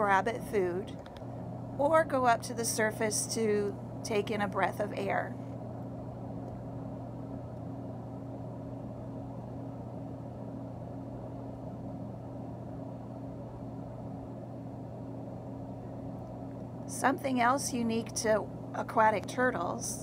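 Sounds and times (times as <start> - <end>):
aquarium filter pump humming: 0.0 - 20.0.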